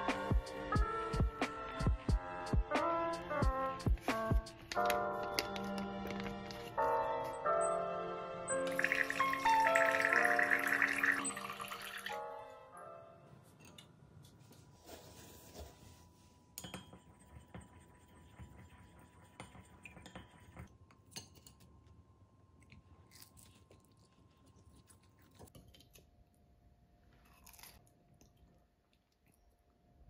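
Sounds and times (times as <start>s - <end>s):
chewing and crunching: 22.6s - 26.1s, 27.1s - 29.7s.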